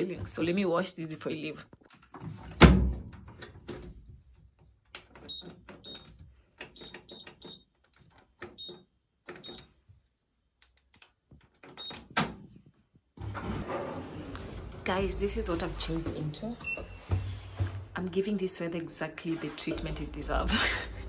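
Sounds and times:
washing machine button beeps: 0:05.2 - 0:07.7, 0:08.5 - 0:09.7, 0:11.8 - 0:12.1.

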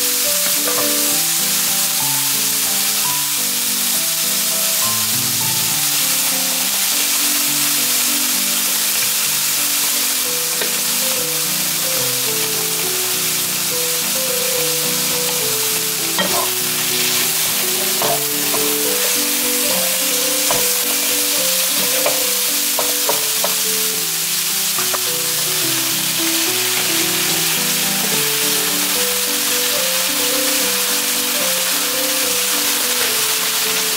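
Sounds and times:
background music with held notes: 0:00.0 - 0:33.9
food sizzling in a frying pan: 0:00.0 - 0:33.9
wooden spatulas scraping a pan: 0:15.1 - 0:23.6.

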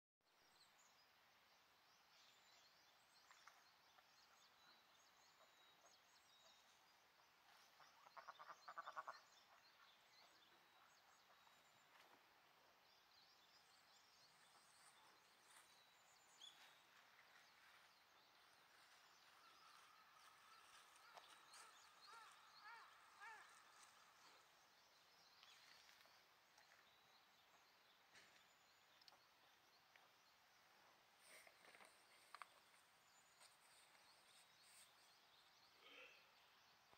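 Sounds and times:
small birds chirping and trilling: 0:00.2 - 0:36.9
rapid low pulsed bird calls: 0:02.3 - 0:12.0, 0:12.8 - 0:25.4, 0:31.3 - 0:36.9.

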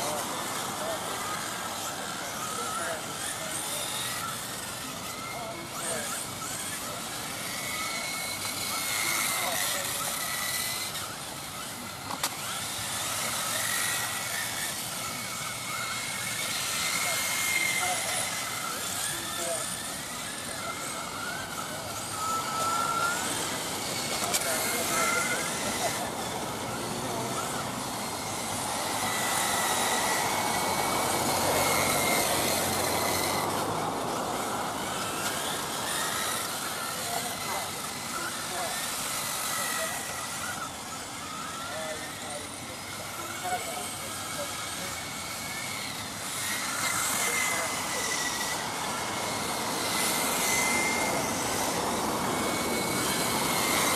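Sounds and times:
rc car motors whining: 0:00.0 - 0:53.9
tyres hissing on asphalt: 0:10.8 - 0:39.2.

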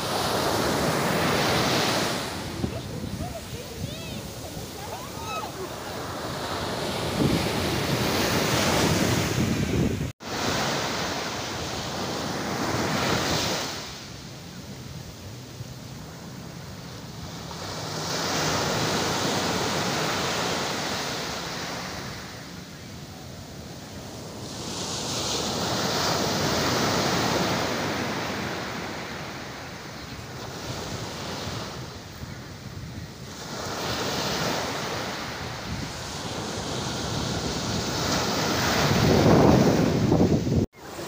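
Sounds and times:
wind rumbling on microphone: 0:00.0 - 0:10.6, 0:35.4 - 0:40.7
waves breaking on beach: 0:00.0 - 0:41.0.

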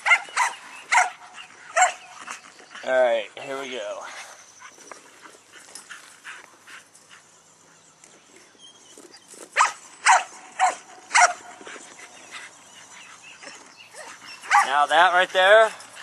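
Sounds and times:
dogs barking: 0:00.0 - 0:02.4, 0:09.6 - 0:16.0.

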